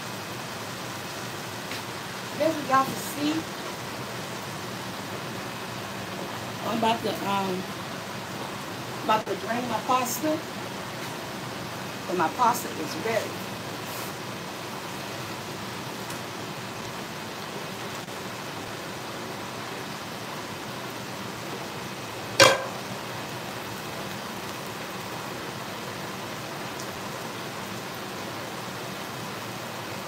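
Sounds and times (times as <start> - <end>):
cooking pot clanking on metal: 22.4 - 22.8.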